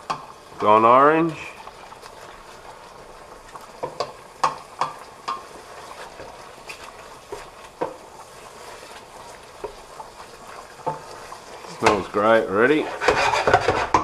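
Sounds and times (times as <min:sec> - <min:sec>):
food sizzling in a pot: 0:00.0 - 0:14.0
wooden spoon knocking on pot: 0:03.8 - 0:05.5, 0:07.3 - 0:08.0, 0:10.8 - 0:12.2, 0:13.0 - 0:14.0.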